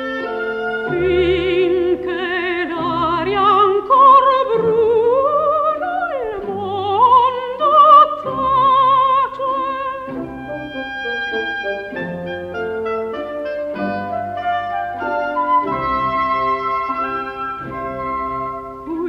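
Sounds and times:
orchestral accompaniment: 0.0s - 19.0s
soprano singing opera: 0.4s - 10.9s, 18.5s - 19.0s.

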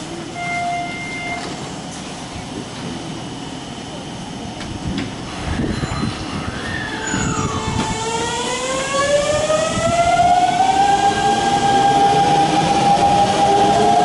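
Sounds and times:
electric train whine: 0.0s - 14.0s.

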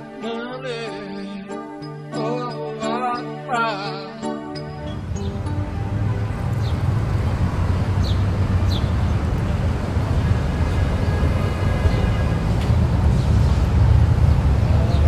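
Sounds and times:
distant traffic rumble: 4.8s - 15.0s.

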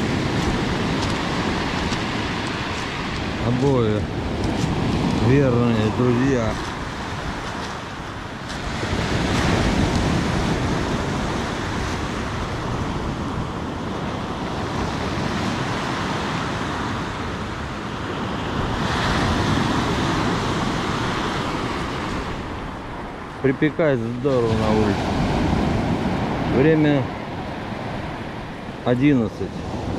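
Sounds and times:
surf breaking on pebble beach: 0.0s - 13.1s.

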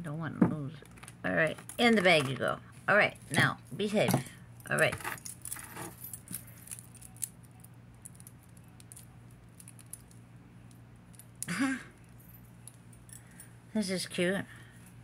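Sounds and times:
steady low hum: 0.0s - 15.0s
chain bracelet clicking and jingling: 4.6s - 13.5s.

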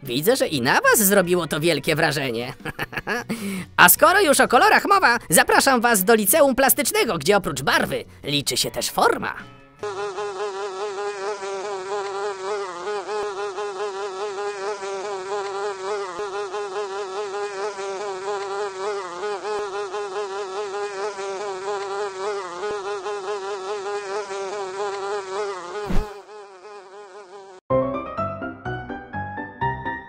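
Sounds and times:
fly buzzing: 2.6s - 3.7s, 9.4s - 27.7s.

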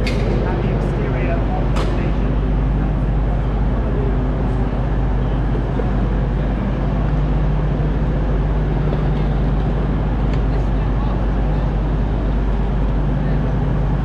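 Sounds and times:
faint background chatter: 0.0s - 14.0s
train engine idling: 0.0s - 14.0s.

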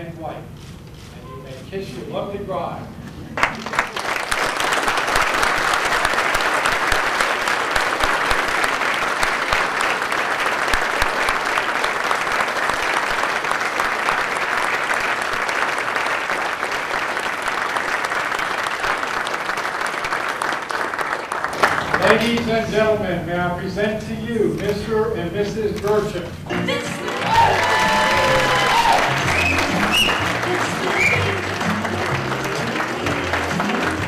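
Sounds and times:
crowd clapping: 3.4s - 22.6s, 26.7s - 34.0s.

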